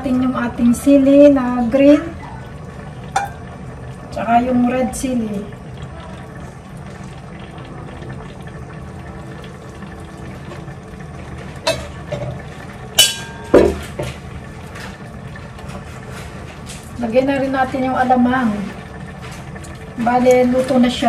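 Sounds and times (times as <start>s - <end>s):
coconut milk simmering: 0.0s - 21.0s
kitchenware clinking: 13.0s - 14.2s.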